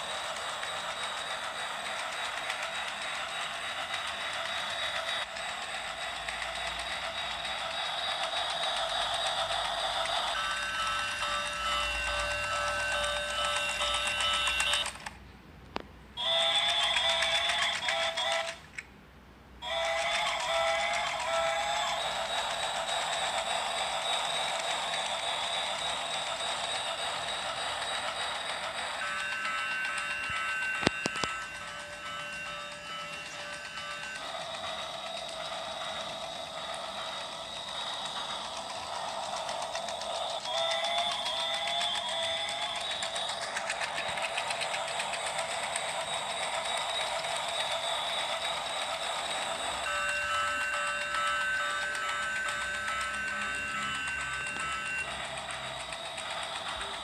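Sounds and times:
fast clicking of gears: 0.0s - 15.2s, 16.2s - 18.8s, 19.6s - 57.0s
high electronic toy tune: 6.5s - 15.1s, 19.6s - 57.0s.

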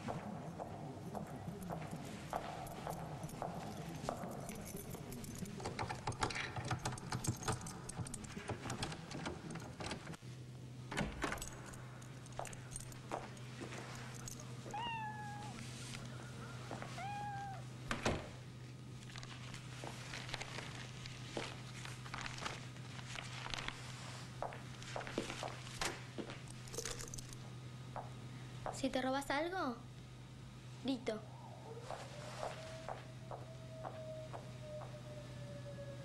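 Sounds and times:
steady low hum: 0.0s - 36.0s
keys rattling in door lock: 1.6s - 10.2s, 10.9s - 14.9s, 26.4s - 27.5s
cat meowing: 14.7s - 15.6s, 16.8s - 17.7s.

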